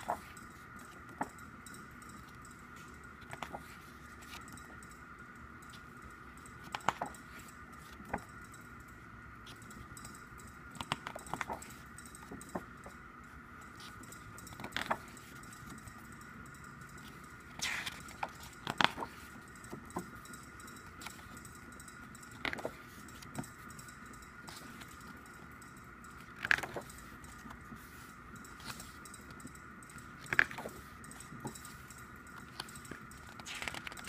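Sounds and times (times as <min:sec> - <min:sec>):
book pages being turned: 0:00.0 - 0:01.4, 0:02.2 - 0:04.8, 0:05.7 - 0:08.3, 0:10.7 - 0:16.1, 0:17.0 - 0:21.4, 0:22.0 - 0:23.7, 0:24.4 - 0:25.5, 0:26.1 - 0:34.0
faint high-pitched hum: 0:00.0 - 0:34.0.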